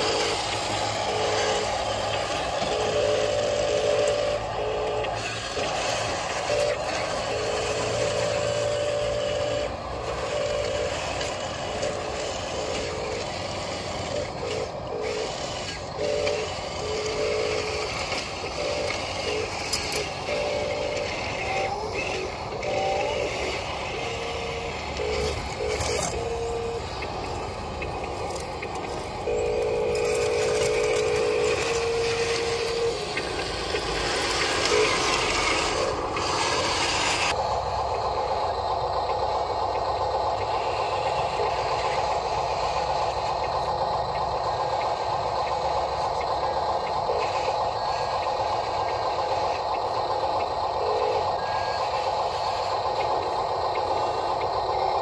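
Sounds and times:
toy electric motors whining: 0.0 - 55.0.

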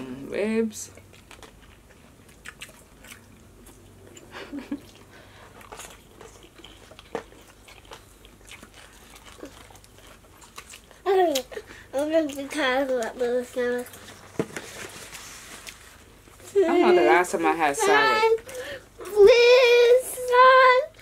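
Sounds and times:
chewing and biting food: 0.9 - 14.4.

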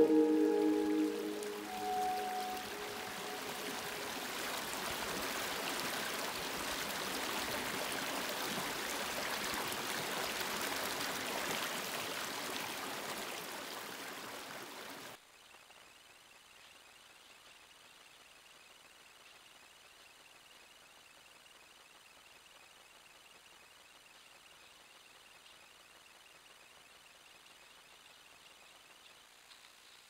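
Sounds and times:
brook flowing over stones: 1.4 - 15.2.

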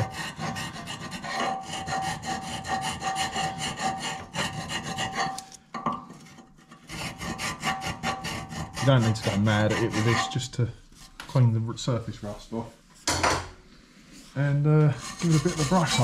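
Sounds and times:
hand file rasping on metal: 0.0 - 5.5, 6.2 - 10.6, 14.9 - 16.0.

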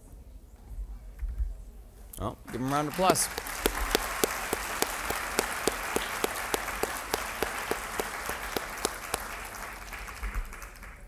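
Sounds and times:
audience applauding: 2.5 - 11.0
person clapping steadily: 2.6 - 10.6.

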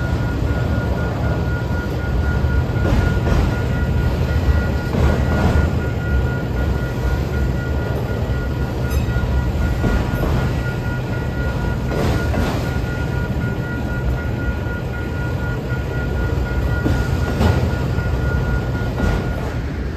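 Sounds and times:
freight train rumbling past: 0.0 - 19.9
train wheels clacking on rail joints: 2.5 - 14.2, 16.7 - 19.9.

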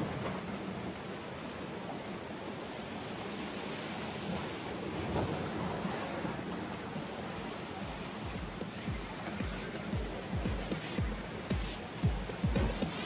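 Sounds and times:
surf washing against rocks: 0.0 - 13.0.

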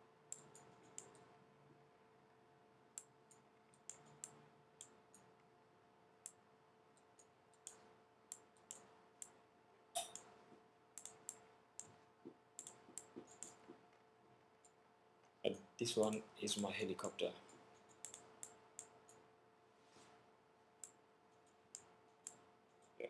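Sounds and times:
faint steady hum: 0.0 - 23.0
computer mouse clicks: 0.3 - 1.3, 2.9 - 5.5, 6.2 - 9.4, 11.0 - 12.0, 12.6 - 14.0, 17.4 - 19.2, 20.8 - 23.0.

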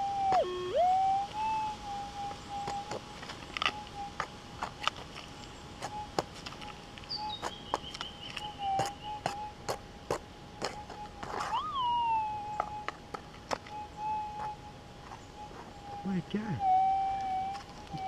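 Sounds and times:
metal detector tone: 0.0 - 2.9, 11.4 - 13.0, 15.4 - 18.0.

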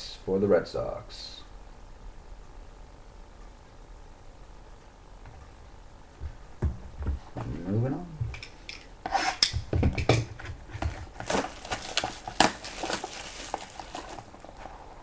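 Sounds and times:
boxes knocking down: 9.6 - 14.3
cardboard rustling and scraping: 10.4 - 15.0.

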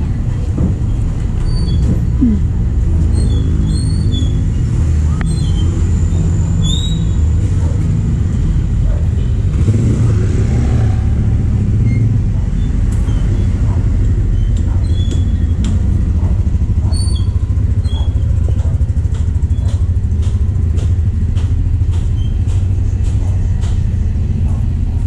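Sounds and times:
rumble of engines and traffic: 0.0 - 25.0
motor scooter passing: 4.3 - 25.0
footsteps on wet concrete: 18.0 - 25.0.

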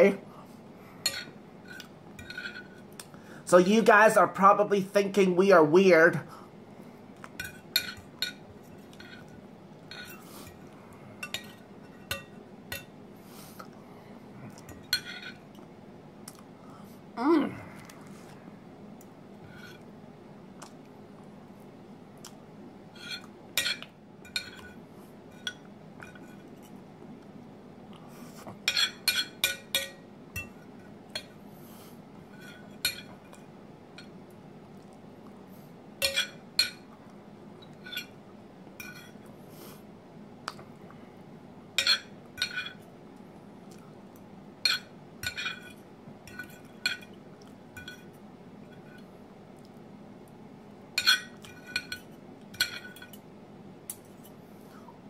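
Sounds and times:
cutlery clinking on a plate: 1.1 - 2.8, 7.4 - 9.3, 14.6 - 15.4, 23.0 - 24.8, 28.6 - 30.6, 32.4 - 33.4, 36.0 - 36.9, 41.8 - 42.8, 44.6 - 47.2, 47.8 - 48.1, 51.0 - 53.2.

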